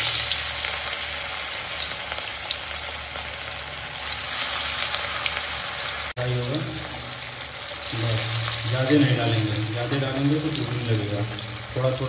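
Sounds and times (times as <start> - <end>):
fish sizzling in hot oil: 0.0 - 12.0.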